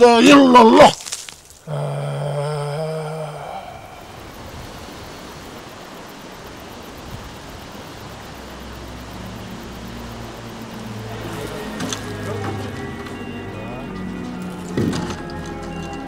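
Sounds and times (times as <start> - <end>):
steady rushing noise: 3.8 - 11.5.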